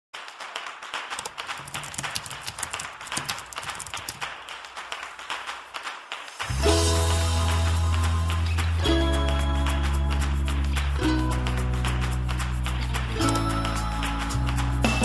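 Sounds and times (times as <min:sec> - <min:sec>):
keyboard typing: 0:01.1 - 0:04.3, 0:12.7 - 0:14.2.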